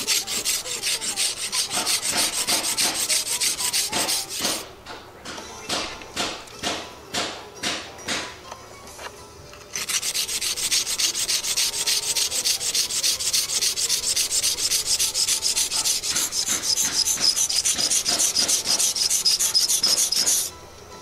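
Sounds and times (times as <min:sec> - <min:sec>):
knife scraping on whetstone: 0:00.0 - 0:04.6, 0:09.7 - 0:20.5.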